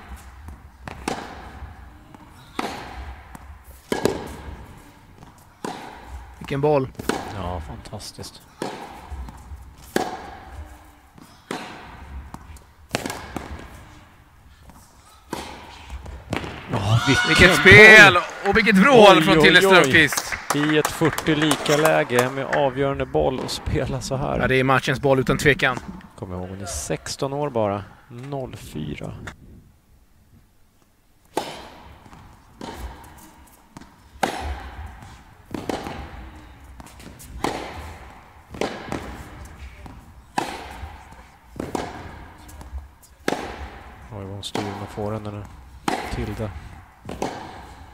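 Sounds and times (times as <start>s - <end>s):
tennis ball racket strikes: 0.0s - 13.9s, 14.6s - 18.0s, 21.4s - 23.6s, 31.3s - 47.9s.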